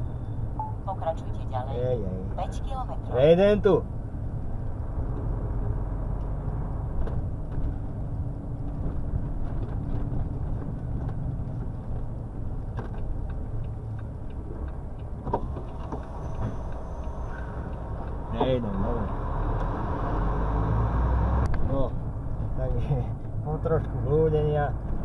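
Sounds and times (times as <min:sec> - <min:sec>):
road noise: 0:00.0 - 0:25.0
truck diesel engine rumble: 0:00.0 - 0:25.0
faint ticks: 0:12.2 - 0:19.7.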